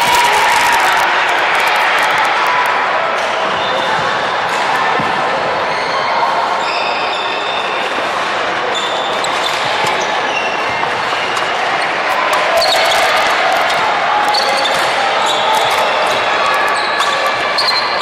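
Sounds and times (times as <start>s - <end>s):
sports hall background din: 0.0s - 18.0s
shoes squeaking on wooden court: 8.7s - 18.0s.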